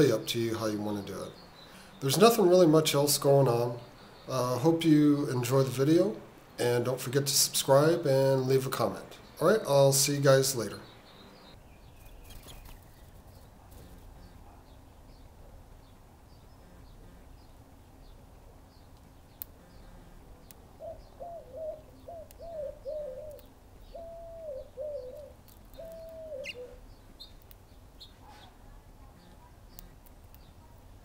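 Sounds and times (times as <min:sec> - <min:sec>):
small birds chirping: 0:00.0 - 0:31.0
dove cooing: 0:20.8 - 0:26.9.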